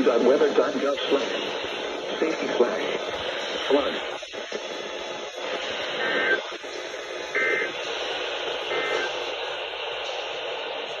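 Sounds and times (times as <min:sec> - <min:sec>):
warbling data bursts: 0:00.0 - 0:09.8
static hiss: 0:00.0 - 0:11.0.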